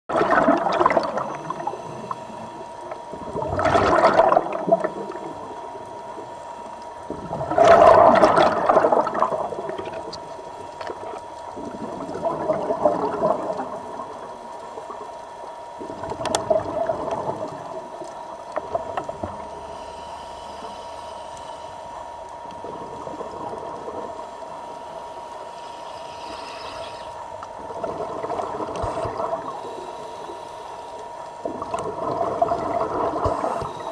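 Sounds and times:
air bubbling underwater: 0.1 - 1.8, 3.2 - 5.2, 7.1 - 10.1, 11.6 - 14.0, 31.4 - 33.7
steady hum: 0.1 - 33.9.

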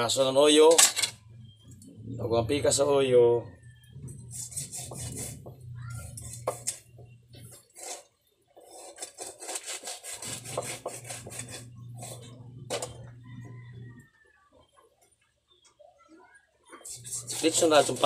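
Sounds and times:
knife sawing through fish: 4.2 - 5.5, 7.5 - 12.3, 16.9 - 18.0.

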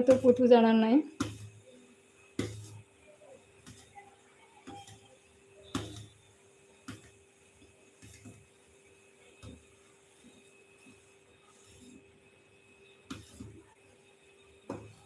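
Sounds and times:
spoon stirring butter: 2.3 - 4.0.

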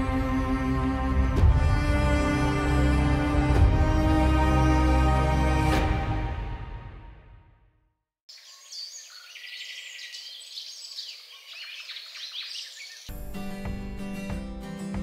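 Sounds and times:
music: 0.0 - 8.0, 13.1 - 15.0
birds chirping: 8.3 - 13.2.

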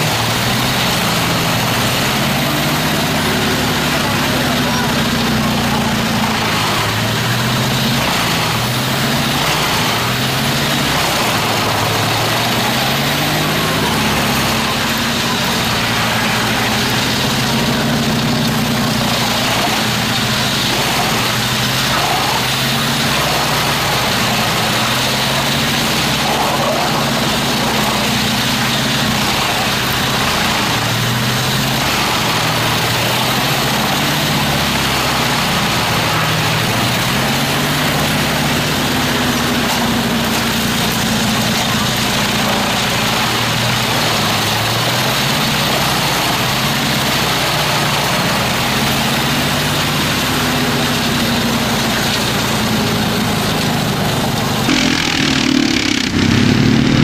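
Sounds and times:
wood chipper engine running: 0.0 - 57.0
short rising whines: 54.7 - 57.0.

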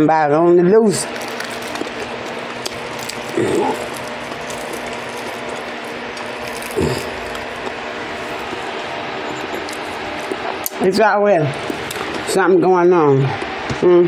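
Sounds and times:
low falling hums: 0.8 - 14.0
crunchy chewing: 1.0 - 10.8, 11.5 - 12.3.

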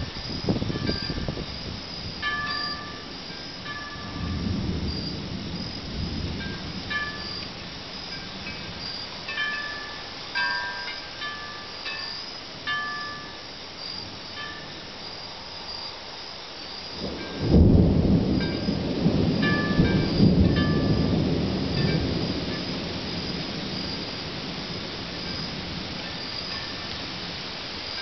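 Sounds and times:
thunder rumble: 0.0 - 10.1, 17.0 - 27.4
heavy rain: 0.0 - 28.0.

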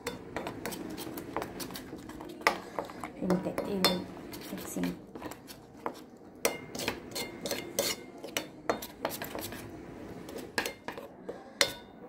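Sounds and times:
spoon stirring batter in metal bowl: 0.0 - 12.0.

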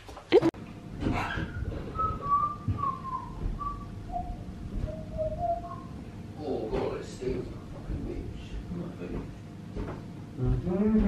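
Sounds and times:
dog whining: 1.0 - 2.2.

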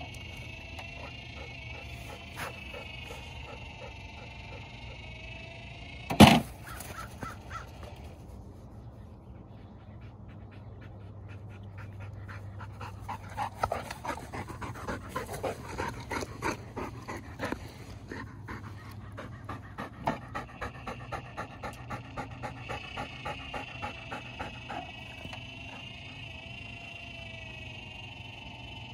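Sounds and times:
dog panting: 0.0 - 5.2, 9.4 - 25.9.

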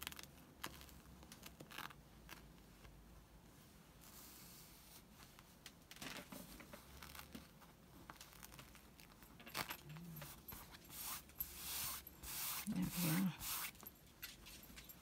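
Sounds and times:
fabric rustling and crinkling: 0.0 - 15.0.

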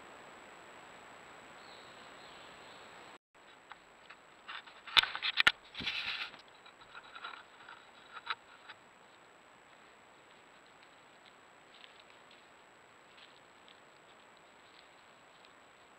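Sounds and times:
animals rustling in leaf litter: 9.2 - 15.9.

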